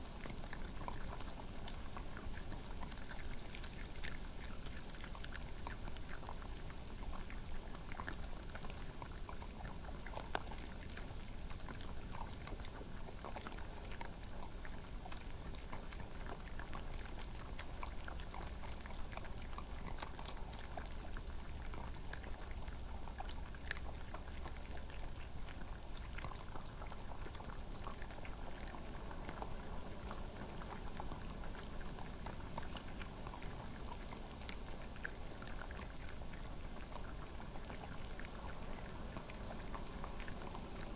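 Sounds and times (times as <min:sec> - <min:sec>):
background hiss: 0:00.0 - 0:09.0
animals crunching peanuts: 0:00.1 - 0:40.9.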